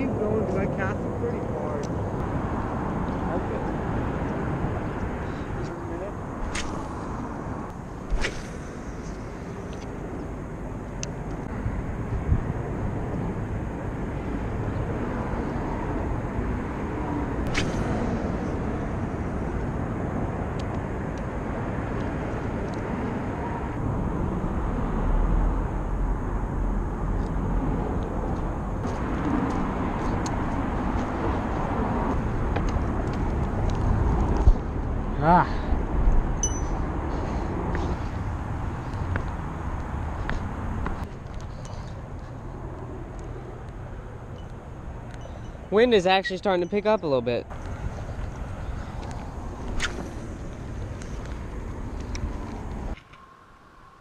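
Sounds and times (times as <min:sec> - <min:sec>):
road traffic rumble: 0:00.0 - 0:54.0.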